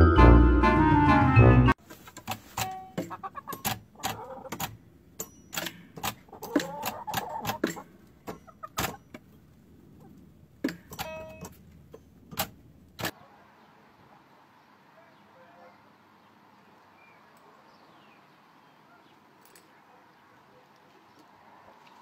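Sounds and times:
hens clucking: 1.9 - 4.8, 5.9 - 10.3
pecking taps and clinks: 2.6 - 9.2.

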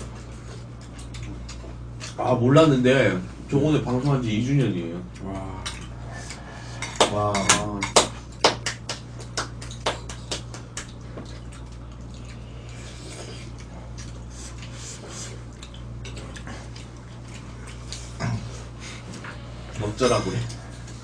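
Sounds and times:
steady low hum: 0.0 - 21.0
utensils clinking on bowls: 19.8 - 20.6.

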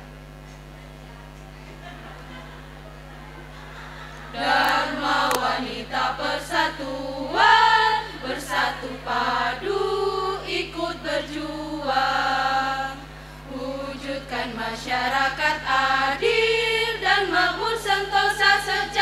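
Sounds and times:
low electrical hum: 0.0 - 19.0
women's choir singing: 4.2 - 19.0.

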